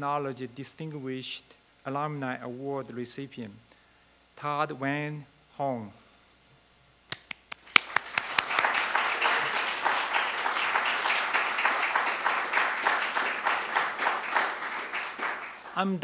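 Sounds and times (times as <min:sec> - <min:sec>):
audience applause: 0:07.6 - 0:16.0.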